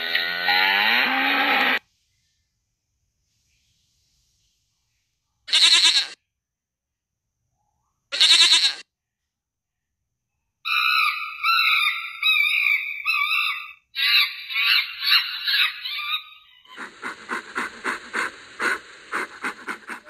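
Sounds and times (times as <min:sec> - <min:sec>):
goat bleating: 0:05.5 - 0:06.2, 0:08.2 - 0:08.8.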